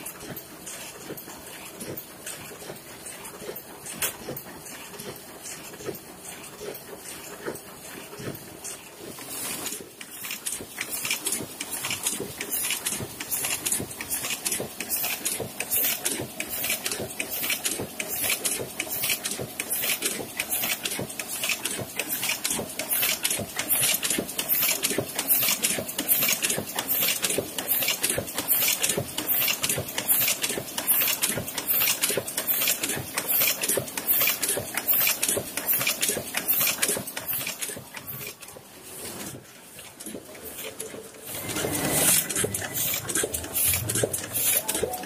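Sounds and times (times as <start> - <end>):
printing press clattering: 0.1 - 45.0
printing press hiss: 9.3 - 37.6, 41.2 - 45.0
sharp mechanical ticks: 10.0 - 38.4, 40.0 - 45.0.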